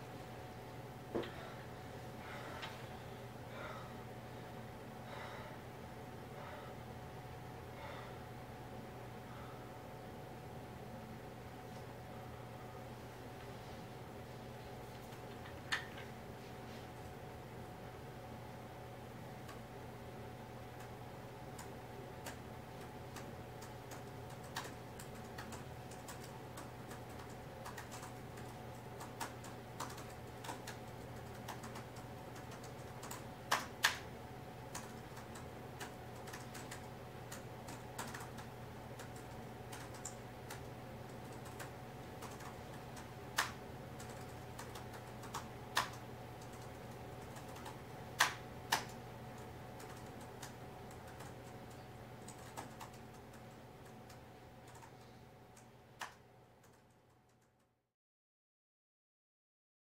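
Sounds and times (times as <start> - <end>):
steady low hum: 0.0 - 57.8
typing on laptop keyboard: 23.1 - 34.0, 34.7 - 57.6.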